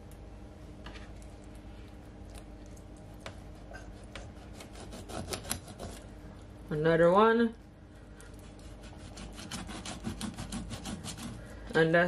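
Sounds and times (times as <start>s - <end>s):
knife slicing fish on board: 4.0s - 6.0s, 8.5s - 11.4s.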